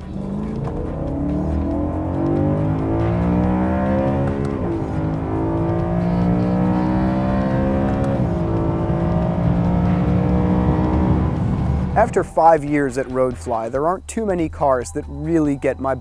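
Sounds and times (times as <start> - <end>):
car engine accelerating hard: 0.0 - 12.2.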